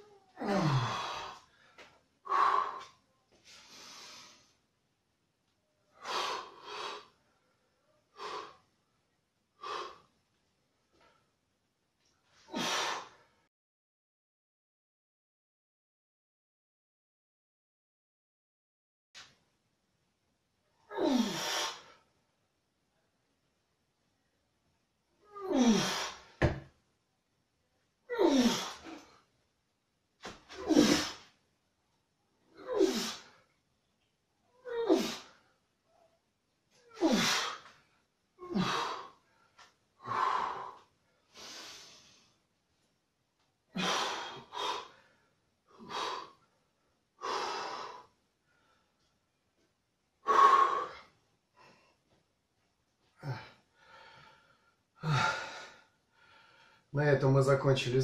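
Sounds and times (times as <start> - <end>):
man breathing out hard: 0.4 - 1.4, 37.0 - 37.7, 40.0 - 42.2, 43.8 - 45.2, 45.8 - 46.4, 47.2 - 48.1, 53.2 - 56.8
man breathing out forcefully: 37.0 - 37.7, 40.0 - 42.2, 43.8 - 45.1, 45.8 - 46.4.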